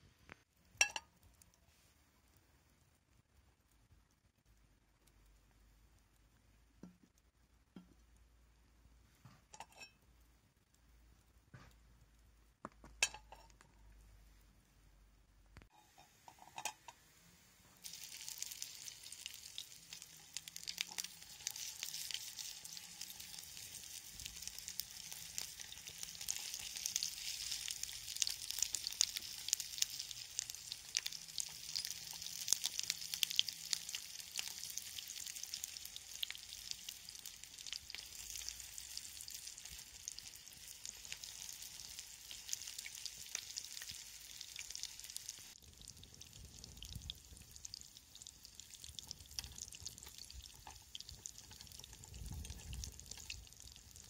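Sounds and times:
sausage sizzling in frying pan: 0:15.7 - 0:54.0.

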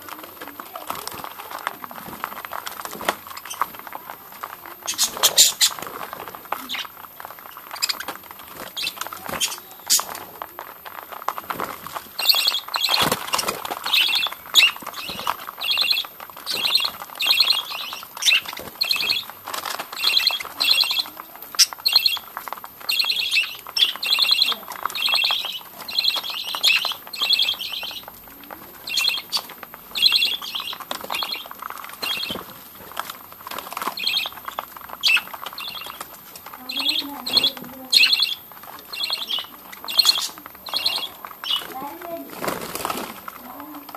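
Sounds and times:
beaks pecking at seed: 0:00.0 - 0:43.9
budgerigars chirping: 0:04.8 - 0:05.9, 0:07.7 - 0:10.2, 0:11.6 - 0:28.1, 0:28.8 - 0:32.6, 0:33.7 - 0:43.0
budgerigar background warble: 0:33.9 - 0:43.9.

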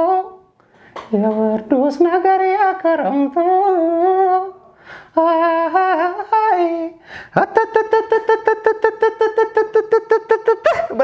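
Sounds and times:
man singing wordless melody: 0:00.0 - 0:11.0.

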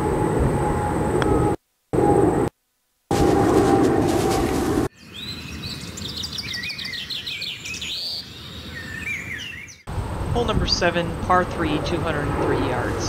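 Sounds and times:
wind rumble on microphone: 0:00.0 - 0:02.5, 0:03.1 - 0:04.9, 0:09.9 - 0:13.0
birds singing: 0:04.9 - 0:09.9.

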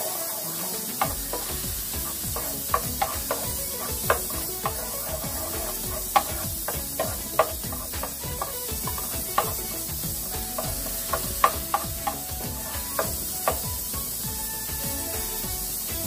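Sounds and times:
light sizzle: 0:00.0 - 0:16.0
spatula scraping a metal pot: 0:00.9 - 0:14.2.

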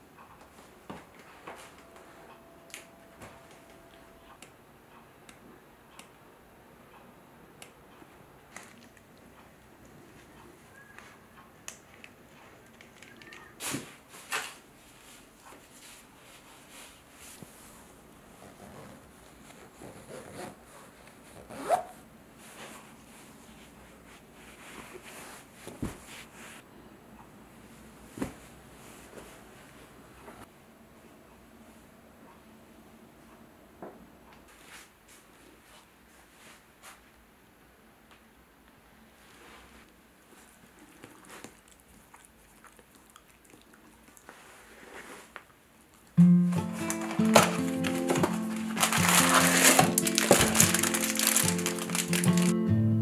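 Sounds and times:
zipper pulled shut: 0:21.4 - 0:21.9
dog rummaging in plush toy: 0:46.8 - 0:52.5.

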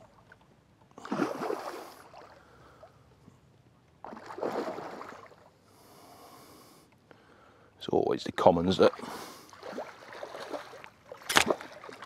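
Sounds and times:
fish splashing heavily: 0:01.0 - 0:02.4, 0:04.1 - 0:05.4, 0:08.9 - 0:12.0.

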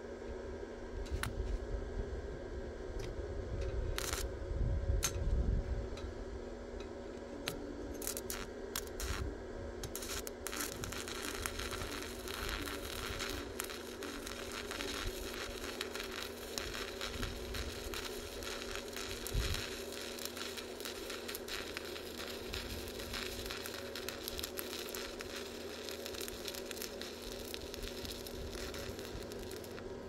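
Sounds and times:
arc welding crackle and sizzle: 0:01.0 - 0:01.6, 0:03.0 - 0:04.4, 0:05.0 - 0:30.0.

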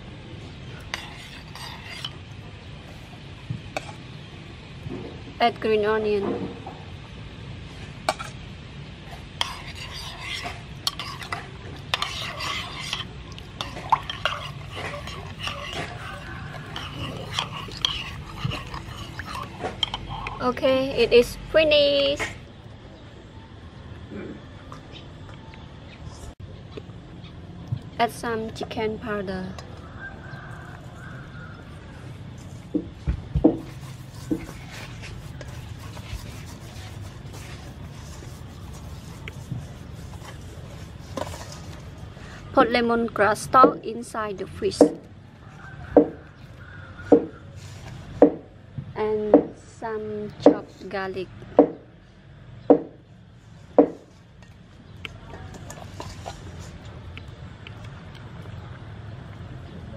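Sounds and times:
spoon scraping pot: 0:00.8 - 0:02.3, 0:09.1 - 0:21.3, 0:33.6 - 0:43.8
hands rubbing raw fish: 0:09.4 - 0:20.4, 0:33.6 - 0:42.2
liquid swishing: 0:09.4 - 0:20.5, 0:33.6 - 0:42.5.

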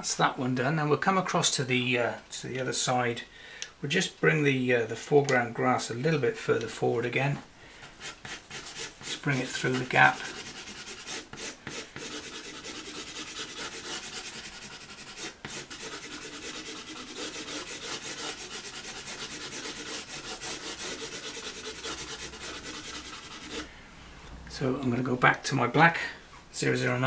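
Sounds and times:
pencil scratching on textured paper: 0:08.0 - 0:23.7.

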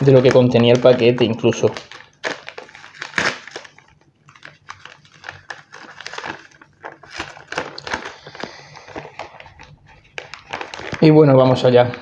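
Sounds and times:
paper envelope rustling: 0:00.0 - 0:11.8.

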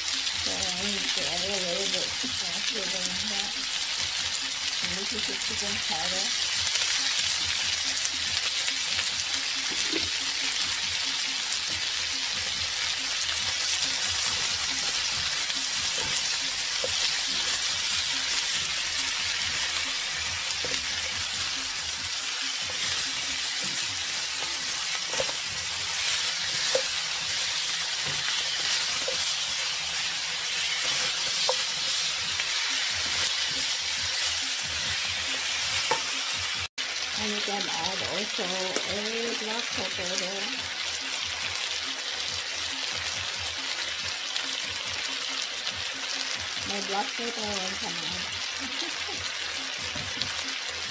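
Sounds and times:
food sizzling in oil: 0:00.0 - 0:50.9
spatula scraping and tapping pan: 0:22.6 - 0:27.1, 0:30.7 - 0:32.4.

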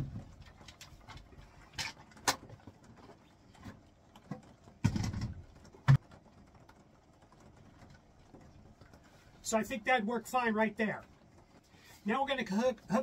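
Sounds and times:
hollow plastic knocks: 0:04.2 - 0:06.1.

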